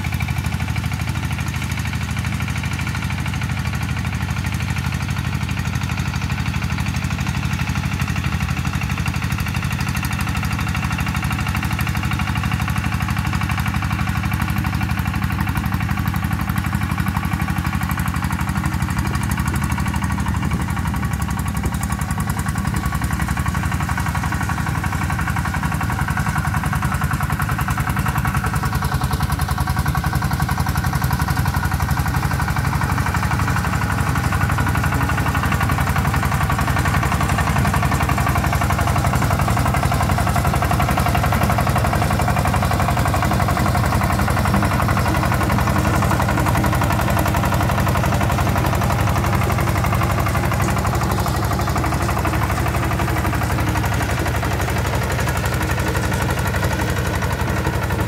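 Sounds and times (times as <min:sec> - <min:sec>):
diesel tractor engine under load: 0:00.0 - 0:58.0.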